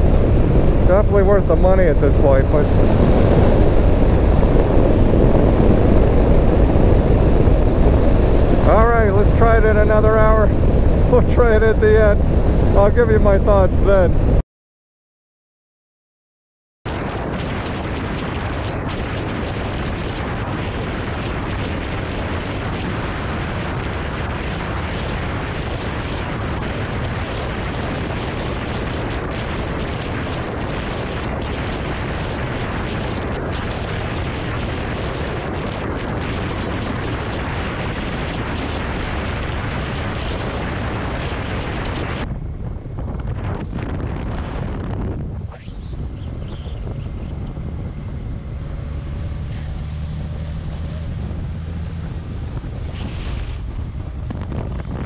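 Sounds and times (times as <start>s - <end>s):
motorcycle engine rumble: 0.0s - 14.4s, 45.7s - 55.0s
wind buffeting microphone: 0.0s - 14.4s, 16.9s - 55.0s.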